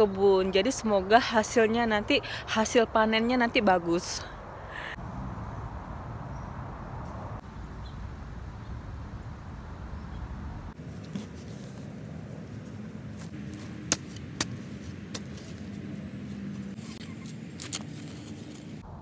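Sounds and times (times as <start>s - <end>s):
steady low hum: 4.3s - 19.0s
metal blade chopping soil: 13.4s - 15.7s.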